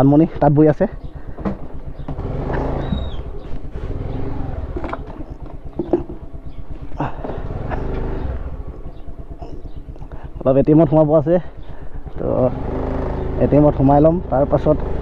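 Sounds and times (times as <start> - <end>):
scooter engine revving: 0.8 - 15.0.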